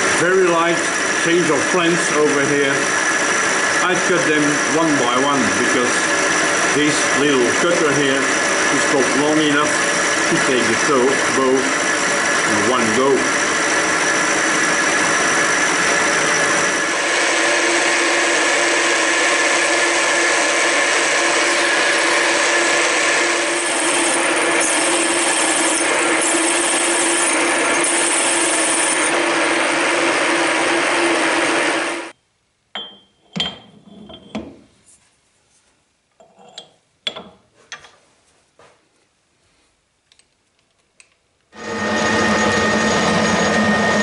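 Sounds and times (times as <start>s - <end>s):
milling machine cutting metal: 0.0s - 32.1s.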